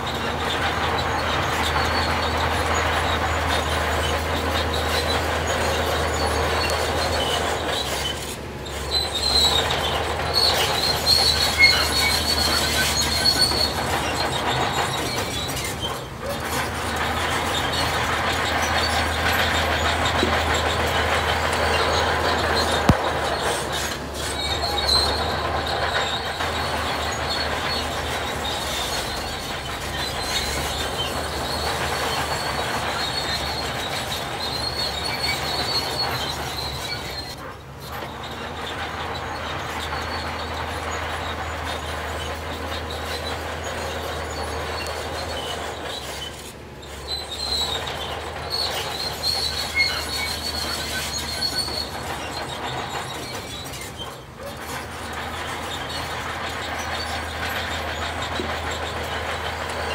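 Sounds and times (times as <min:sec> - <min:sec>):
diesel engine droning: 0:00.0 - 0:59.9
high-pitched squeal: 0:00.0 - 0:59.9
steel tracks clattering: 0:00.0 - 0:59.9.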